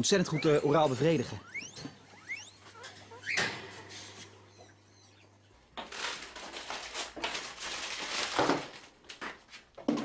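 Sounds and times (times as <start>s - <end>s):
guinea pig squealing: 0.0s - 3.8s, 4.5s - 5.4s.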